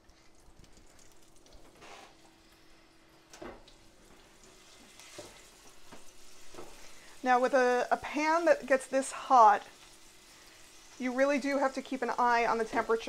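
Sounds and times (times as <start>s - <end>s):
food sizzling in a pan: 3.7s - 13.0s.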